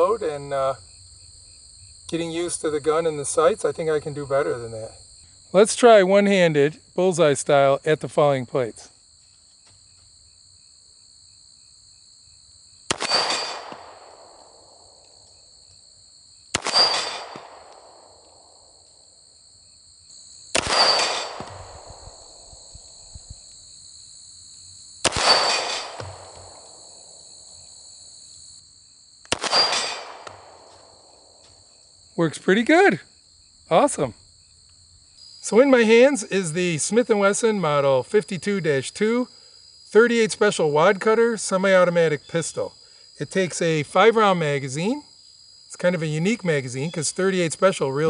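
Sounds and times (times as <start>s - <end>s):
crickets chirring: 0.0s - 48.0s
pistol shots: 12.9s - 14.8s, 16.5s - 18.6s, 20.5s - 22.2s, 25.0s - 27.1s, 29.3s - 31.1s.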